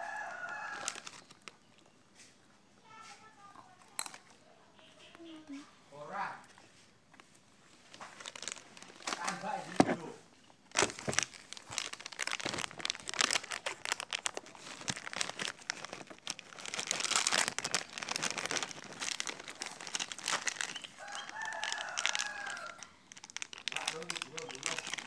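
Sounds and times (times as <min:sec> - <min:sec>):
rooster crowing: 0:00.0 - 0:01.1, 0:21.0 - 0:23.0
plastic packets crinkling: 0:00.0 - 0:02.0, 0:07.2 - 0:25.0.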